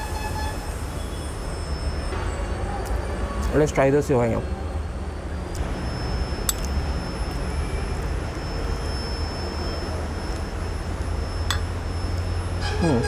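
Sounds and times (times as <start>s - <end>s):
faint high whine: 0.0s - 13.0s
low outdoor rumble: 4.8s - 13.0s.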